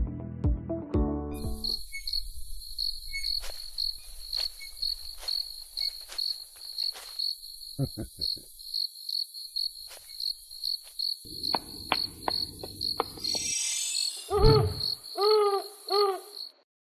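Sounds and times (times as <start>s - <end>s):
crickets chirping: 1.5s - 16.6s
owl hooting: 11.3s - 16.5s
shimmer of high tones: 13.3s - 14.4s.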